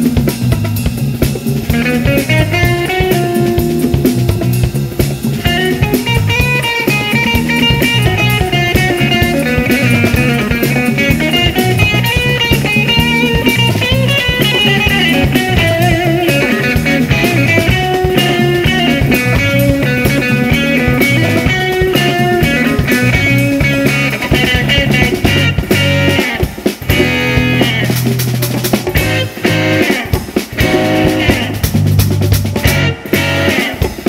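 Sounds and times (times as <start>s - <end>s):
bass guitar: 0.0s - 34.0s
drum kit groove: 0.0s - 34.0s
electric guitar: 0.0s - 34.0s.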